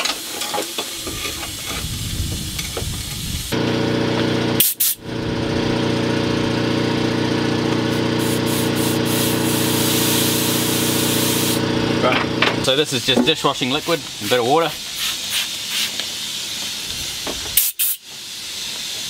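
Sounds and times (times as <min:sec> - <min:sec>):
motor humming: 0:01.8 - 0:12.7
compressed air hissing: 0:04.6 - 0:05.0, 0:07.9 - 0:11.7, 0:13.0 - 0:19.0.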